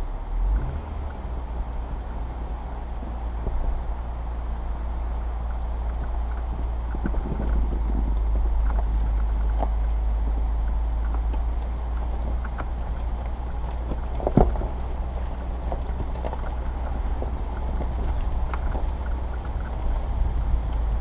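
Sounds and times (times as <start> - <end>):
vehicle driving over rocky track: 0.0 - 21.0
clicks and knocks from stones: 5.4 - 21.0.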